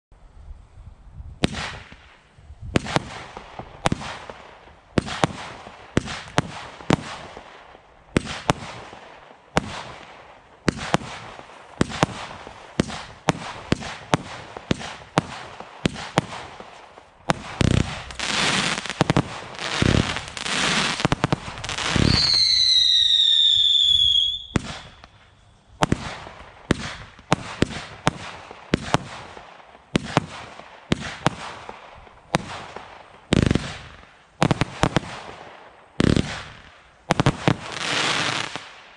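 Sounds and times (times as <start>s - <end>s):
firework bangs: 1.4s - 2.2s, 2.8s - 38.9s
firework crackle: 1.4s - 38.9s
falling firework whistle: 17.4s - 26.2s.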